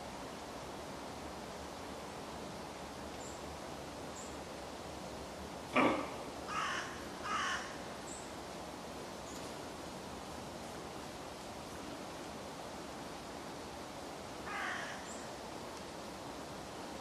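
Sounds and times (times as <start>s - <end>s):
deer hoarse alarm barks: 5.7s - 6.2s.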